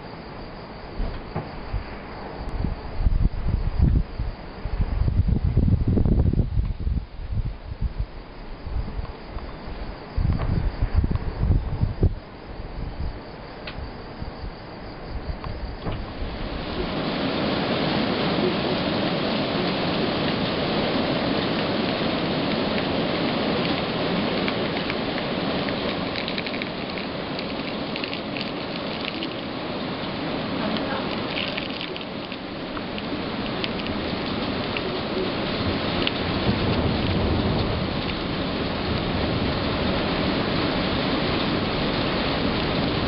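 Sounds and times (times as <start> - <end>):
thunder rumble: 0.0 - 43.0
heavy rain falling: 15.4 - 43.0
water pouring off a roof: 15.8 - 43.0
drops ticking: 24.5 - 29.5, 30.7 - 34.9.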